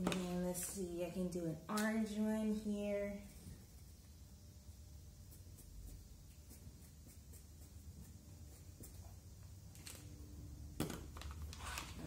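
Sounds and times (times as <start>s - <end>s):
marker scribbling on paper towel: 5.2s - 9.0s.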